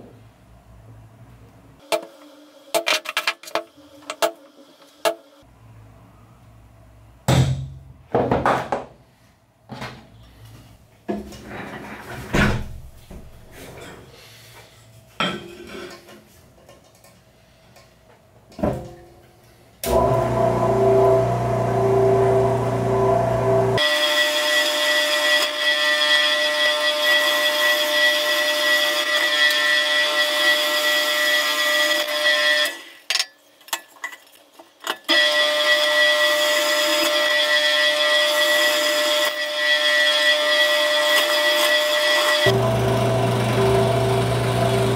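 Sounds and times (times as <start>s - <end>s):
drill press whining: 19.8s - 23.9s, 35.1s - 44.9s.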